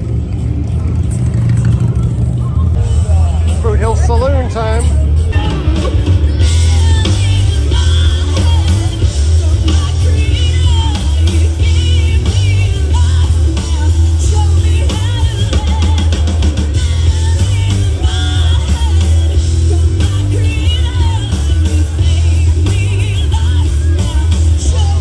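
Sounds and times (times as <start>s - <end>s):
bass guitar: 0.0s - 25.0s
drum kit: 0.0s - 25.0s
electric guitar: 0.0s - 25.0s
woman singing: 5.2s - 25.0s.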